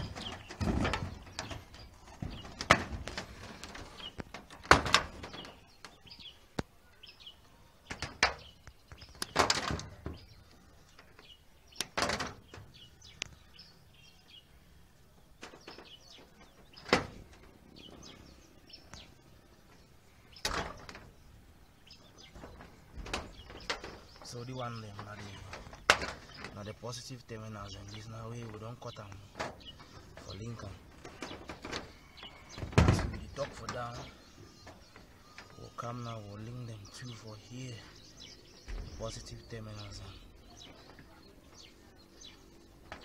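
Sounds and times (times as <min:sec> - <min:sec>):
tools knocking on metal roof: 0:31.0 - 0:33.8.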